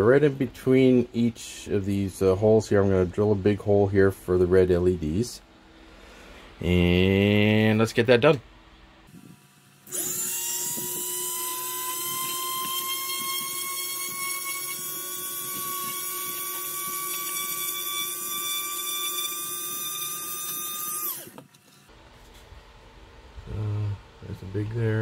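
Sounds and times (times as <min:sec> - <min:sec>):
rotary tool drilling plastic: 0:09.8 - 0:21.6.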